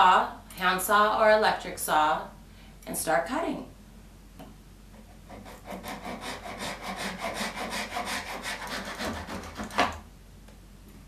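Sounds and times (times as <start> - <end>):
hand saw cutting wood: 5.2 - 10.0.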